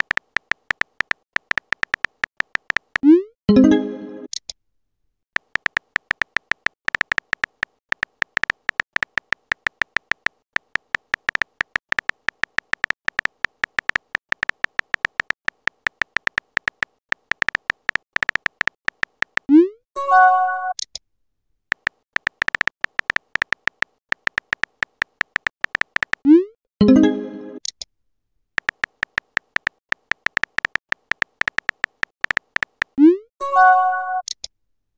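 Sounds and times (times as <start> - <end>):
electronic keyboard ticks: 0.0 - 3.2, 5.4 - 19.6, 21.7 - 26.4, 28.6 - 33.1
message-sent pop and chime: 3.5 - 4.3, 26.8 - 27.6.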